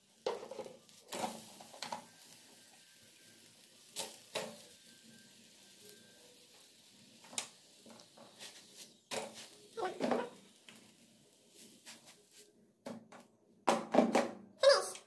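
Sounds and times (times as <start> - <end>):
flatbread sizzling on a griddle: 0.0 - 12.5
knocks and scrapes on griddle: 0.2 - 2.4, 4.0 - 4.9, 6.5 - 14.4.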